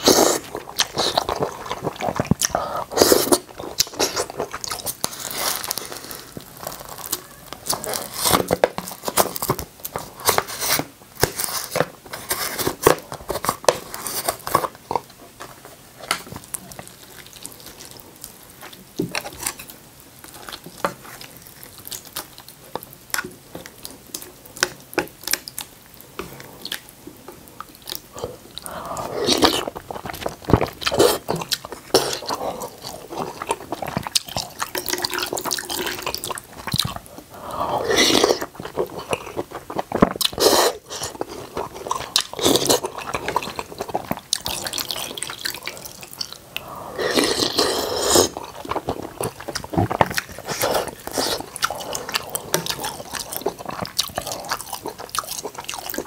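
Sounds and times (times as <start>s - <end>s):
person chewing: 0.0s - 56.0s
slurping noodles: 37.4s - 38.7s, 46.6s - 55.0s.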